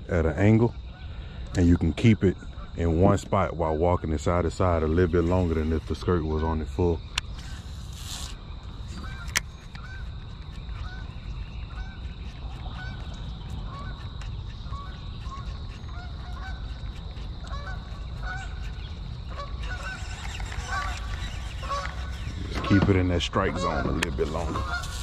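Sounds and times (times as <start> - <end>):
waterfowl honking: 8.8 - 25.0.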